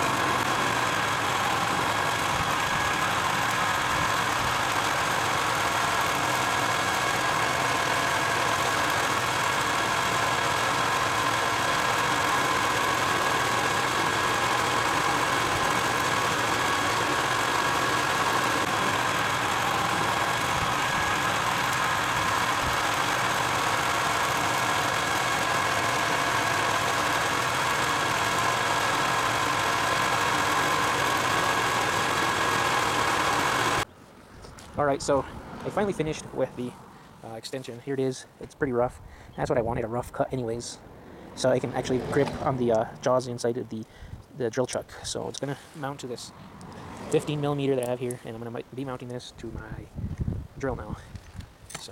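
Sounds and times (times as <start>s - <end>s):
metal lathe running: 0.0s - 33.9s.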